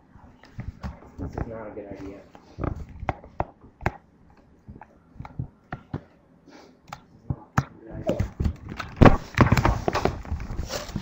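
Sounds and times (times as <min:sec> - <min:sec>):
laptop handling noise: 0:00.3 - 0:06.2, 0:08.0 - 0:11.0
footsteps and thuds: 0:07.2 - 0:11.0.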